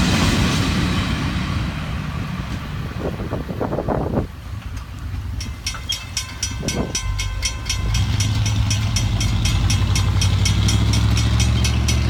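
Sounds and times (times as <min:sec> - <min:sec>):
vehicle engine rumble: 0:00.0 - 0:12.0
crossing warning bell ringing: 0:04.7 - 0:12.0.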